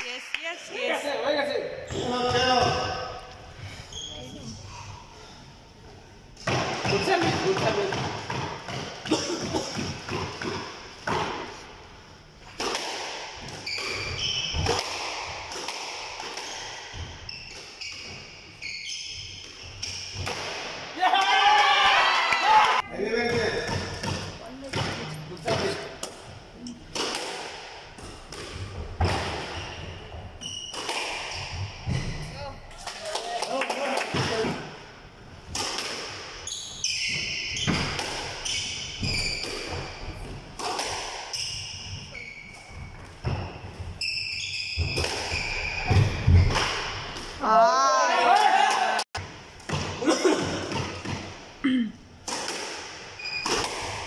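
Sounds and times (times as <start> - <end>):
shoes squeaking on court floor: 1.9 - 5.4, 13.4 - 15.5, 16.2 - 20.2, 28.2 - 32.7, 36.4 - 40.5, 41.3 - 47.2, 53.1 - 54.0
squash ball hits: 6.4 - 11.6, 12.4 - 18.1, 26.9 - 29.8, 30.6 - 32.2, 37.1 - 41.4.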